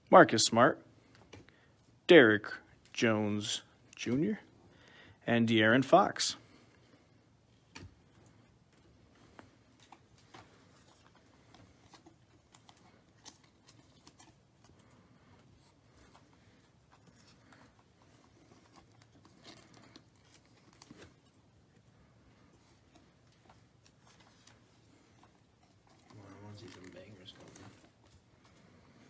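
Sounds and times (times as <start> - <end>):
cards clicking and rustling: 7.6 - 21.8, 22.5 - 28.6
foil card pack rustling: 15.5 - 21.8, 22.7 - 28.3.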